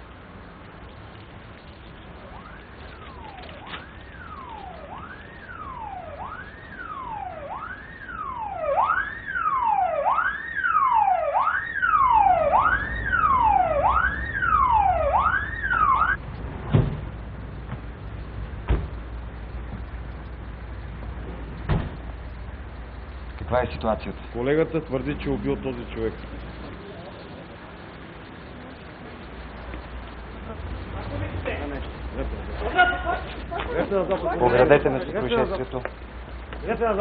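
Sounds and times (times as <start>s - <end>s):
low engine rumble: 0.0s - 37.0s
siren wailing: 2.2s - 16.2s
thump: 16.6s - 17.1s, 18.6s - 19.0s, 21.6s - 22.0s.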